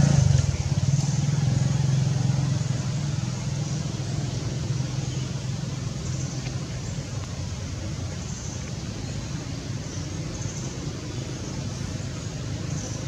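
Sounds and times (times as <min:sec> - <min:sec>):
motor engine running: 0:00.0 - 0:08.2.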